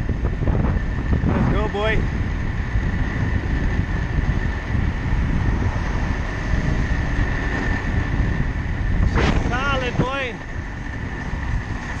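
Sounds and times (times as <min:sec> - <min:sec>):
skate wheels rolling on asphalt: 0:00.0 - 0:12.0.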